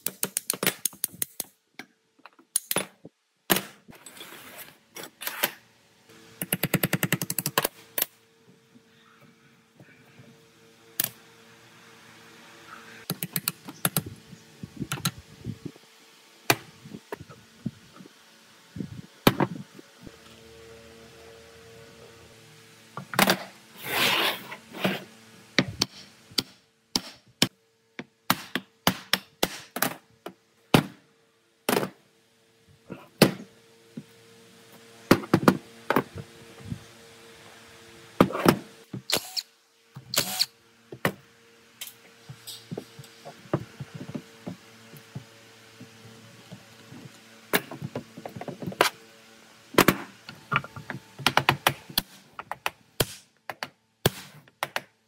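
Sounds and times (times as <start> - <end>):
steady low hum: 5.6 - 28.3, 30.2 - 54.1
knocks and thuds of tool work: 19.2 - 19.6, 28.0 - 31.0, 35.1 - 36.2, 42.3 - 45.3.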